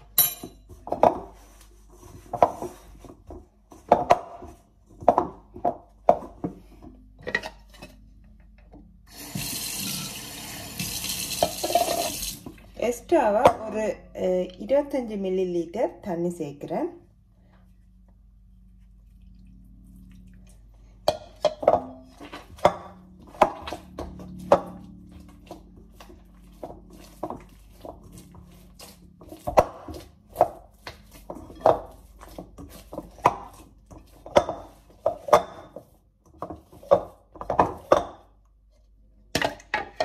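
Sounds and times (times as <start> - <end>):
hand kneading wet dough: 17.6 - 20.8, 22.2 - 38.0.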